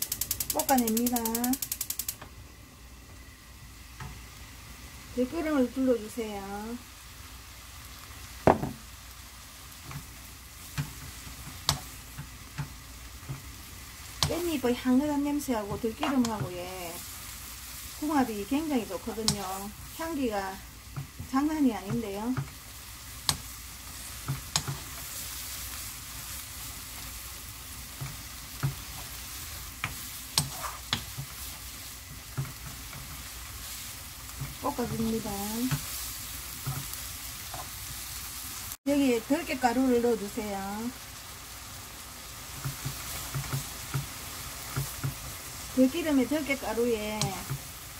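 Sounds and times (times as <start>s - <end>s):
leaves sizzling in oil: 0.0s - 47.9s
wooden spoon knocking on pan: 8.4s - 8.8s, 20.9s - 22.6s, 28.0s - 29.0s, 32.1s - 33.1s, 42.6s - 45.2s
wooden spoon knocking pan: 8.5s - 8.8s.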